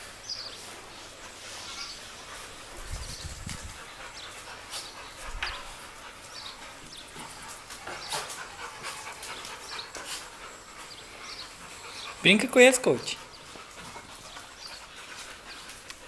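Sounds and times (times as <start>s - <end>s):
dogs panting: 0.0s - 16.0s
dogs whimpering: 3.6s - 16.0s.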